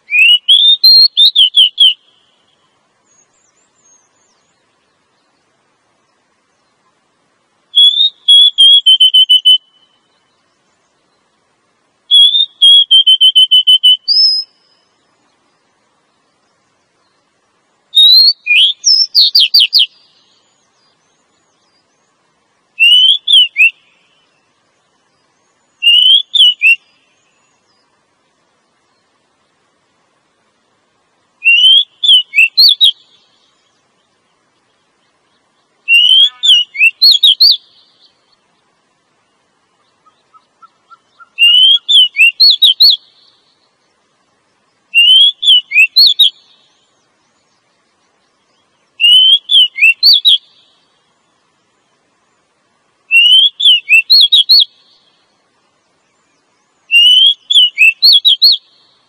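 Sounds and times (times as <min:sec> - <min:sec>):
bird whistled calls: 0:00.0 - 0:02.4, 0:07.7 - 0:10.0, 0:12.1 - 0:14.9, 0:17.9 - 0:20.6, 0:22.8 - 0:24.4, 0:25.5 - 0:27.8, 0:31.4 - 0:33.1, 0:35.8 - 0:38.1, 0:40.0 - 0:43.3, 0:44.9 - 0:46.7, 0:49.0 - 0:50.6, 0:53.1 - 0:55.0, 0:56.8 - 0:58.9.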